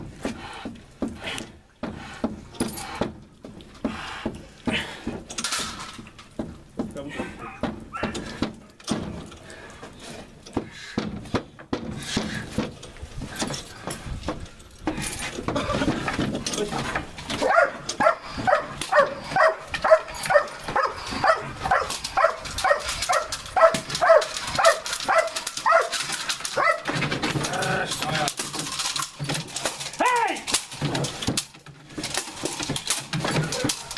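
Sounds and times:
knocks and scuffling: 0:00.0 - 0:33.9
dog barking: 0:17.4 - 0:26.0, 0:26.6 - 0:26.9.

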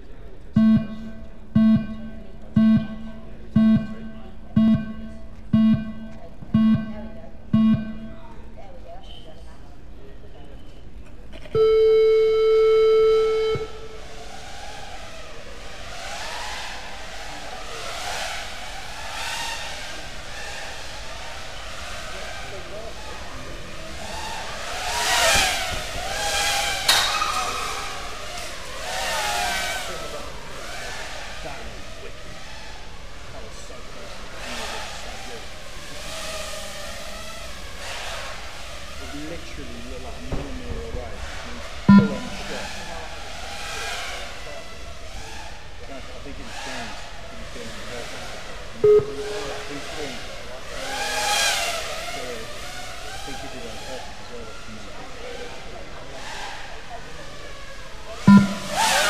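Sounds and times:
low buzzy electronic beeps: 0:00.5 - 0:08.4, 0:11.6 - 0:14.2, 0:41.9 - 0:42.9, 0:48.8 - 0:50.2, 0:58.3 - 0:59.0
quadcopter motors whining: 0:11.4 - 0:59.0.

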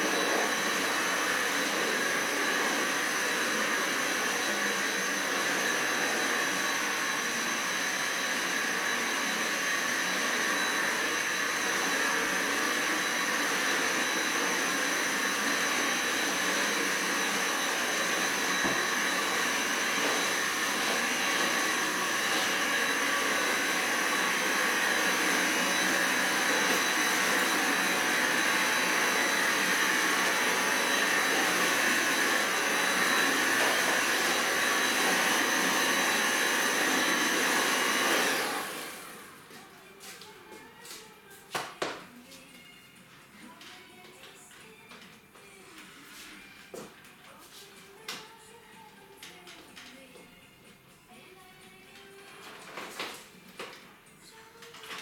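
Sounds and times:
vacuum motor winding down: 0:00.0 - 0:39.4
stick vacuum cleaner whining: 0:00.0 - 0:40.2.

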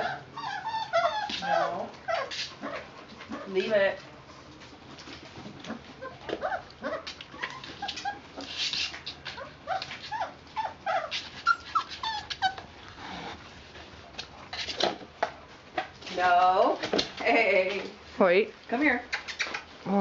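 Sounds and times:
puppies whining and whimpering: 0:00.0 - 0:02.8, 0:05.7 - 0:08.6, 0:09.3 - 0:13.4.

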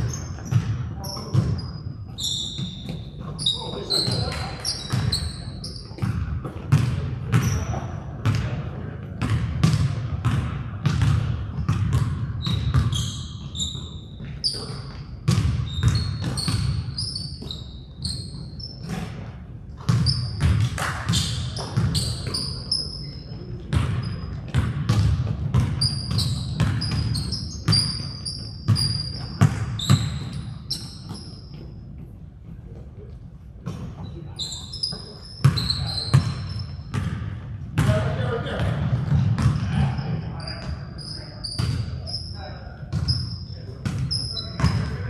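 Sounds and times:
sneaker squeaks: 0:00.0 - 0:08.5, 0:09.2 - 0:32.2, 0:33.6 - 0:45.0
basketball bouncing on hardwood floor: 0:00.4 - 0:01.6, 0:04.3 - 0:05.2, 0:05.9 - 0:07.6, 0:08.2 - 0:08.5, 0:09.2 - 0:13.6, 0:14.2 - 0:17.5, 0:19.8 - 0:22.4, 0:23.7 - 0:28.0, 0:28.6 - 0:31.7, 0:35.4 - 0:38.0, 0:38.6 - 0:39.9, 0:42.9 - 0:43.2, 0:43.8 - 0:45.0
players' voices: 0:03.2 - 0:09.4, 0:37.8 - 0:45.0.

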